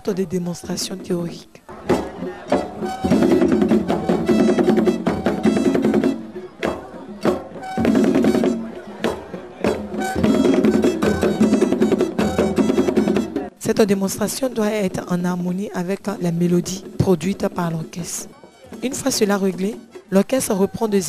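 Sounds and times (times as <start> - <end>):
rapid drum strokes: 1.7 - 13.6
pitched melody line: 1.8 - 13.5.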